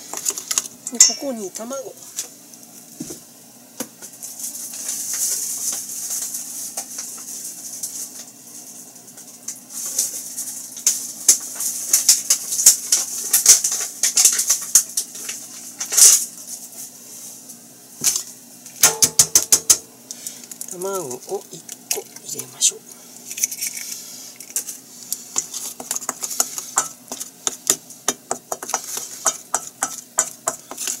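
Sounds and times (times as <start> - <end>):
stirring scraping hiss in bowl: 20.2 - 31.0.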